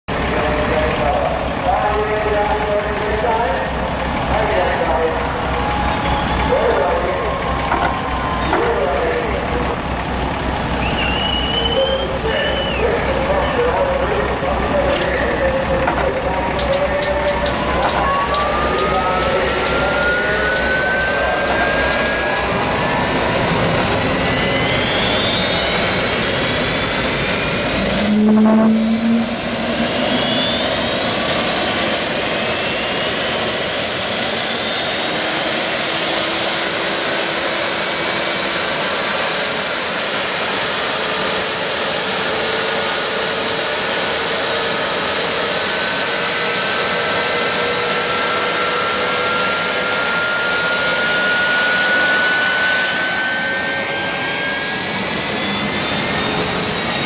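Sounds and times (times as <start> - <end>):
jet turbine engine whining: 0.1 - 57.0.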